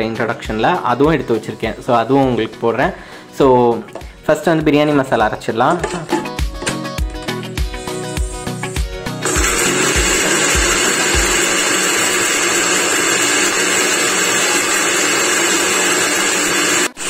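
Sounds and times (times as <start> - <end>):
background music with a beat: 0.0 - 11.6
electric spice grinder running: 7.8 - 17.0.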